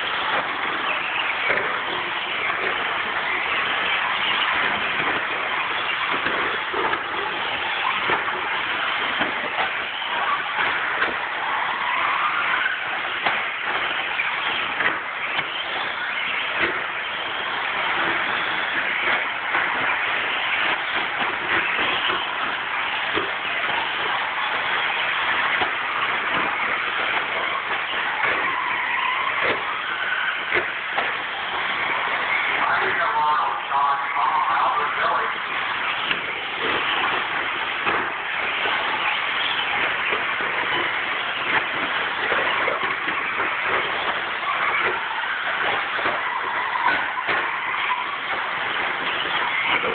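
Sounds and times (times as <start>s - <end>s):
tyres on dirt: 0.0s - 49.9s.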